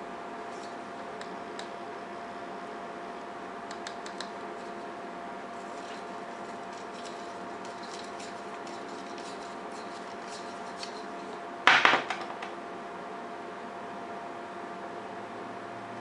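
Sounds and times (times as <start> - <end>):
steady tonal hum: 0.0 - 11.6
light clicks of small parts: 3.7 - 4.4.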